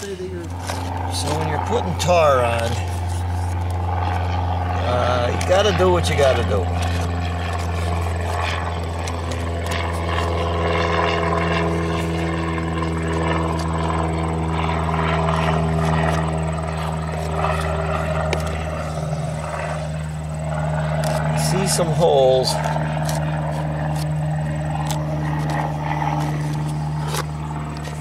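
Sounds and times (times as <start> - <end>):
engine running steadily: 0.0 - 28.0.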